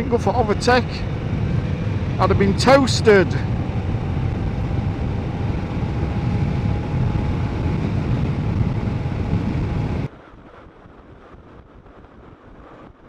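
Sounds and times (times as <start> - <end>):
motorcycle running: 0.0 - 10.1
wind rushing over microphone: 0.0 - 13.0.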